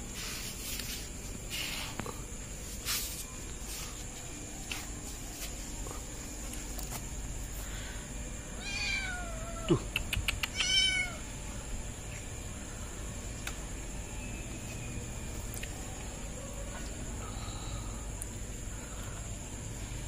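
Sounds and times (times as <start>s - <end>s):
kitten meowing: 8.6s - 9.7s, 10.5s - 11.2s.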